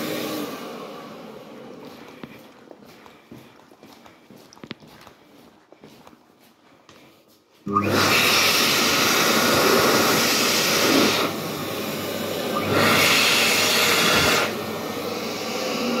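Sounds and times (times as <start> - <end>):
hand dryer blowing air: 0.0 - 3.3, 7.6 - 16.0.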